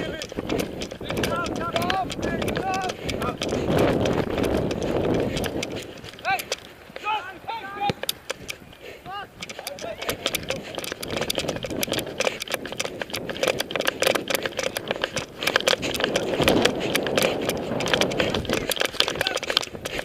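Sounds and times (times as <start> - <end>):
camera handling rattle: 0.0 - 7.1, 7.8 - 8.8, 9.4 - 20.0
steady rushing noise: 0.0 - 20.0.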